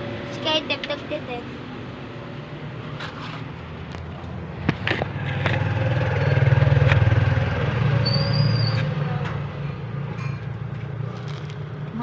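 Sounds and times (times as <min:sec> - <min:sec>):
passing vehicle engine rumble: 0:00.0 - 0:12.0
high squeak: 0:08.0 - 0:08.9.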